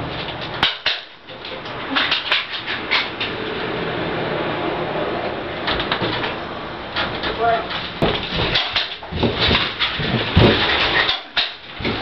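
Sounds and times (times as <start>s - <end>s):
sharp knocks and clicks: 5.6s - 12.0s.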